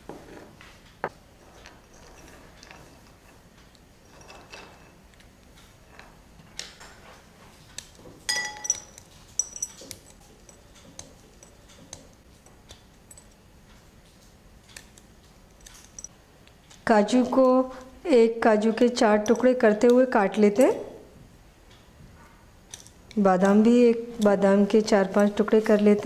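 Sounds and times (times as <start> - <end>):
glass bowls clinking: 8.3 - 11.6.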